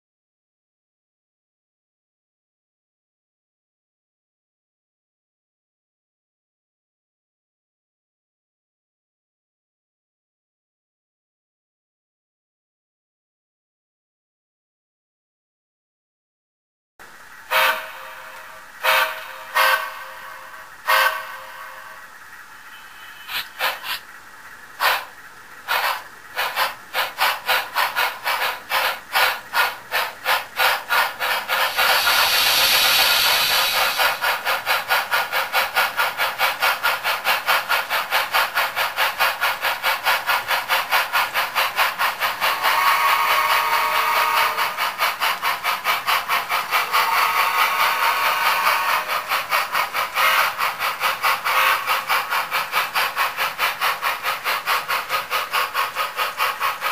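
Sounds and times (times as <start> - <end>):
model steam locomotive chuffing: 17.0 - 56.9
steam hiss: 22.6 - 24.1, 24.8 - 56.9.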